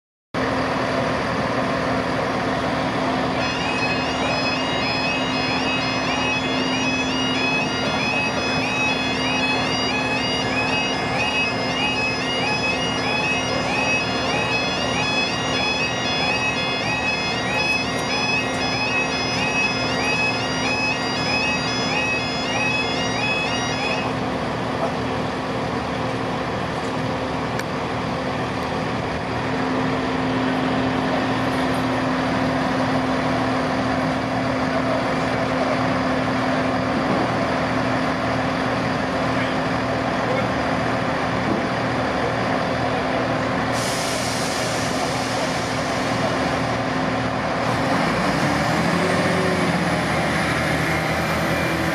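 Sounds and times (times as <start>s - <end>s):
diesel train idling: 0.4s - 51.9s
two-tone crossing alarm: 3.2s - 24.2s, 43.7s - 51.9s
air hissing: 43.7s - 46.6s.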